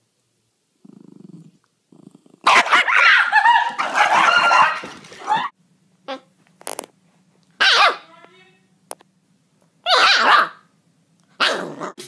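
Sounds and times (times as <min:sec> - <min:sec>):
dog growling low: 0:00.8 - 0:02.5, 0:11.4 - 0:12.0
dog barking and yapping: 0:02.4 - 0:05.5, 0:07.6 - 0:08.1, 0:09.8 - 0:10.7, 0:11.3 - 0:12.0.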